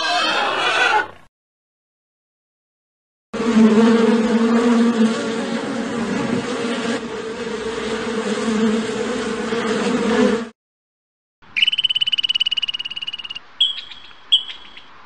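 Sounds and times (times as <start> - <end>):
honeybee buzzing: 3.4 - 10.6.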